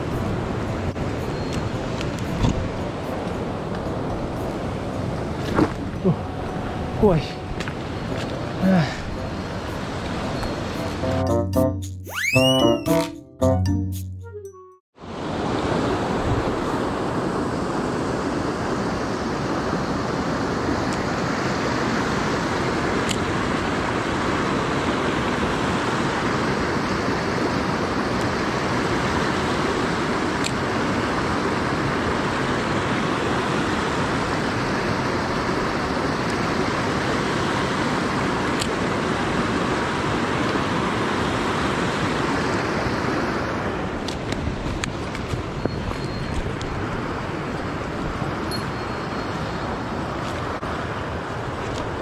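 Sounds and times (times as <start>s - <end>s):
stream rushing over rocks: 15.0s - 45.6s.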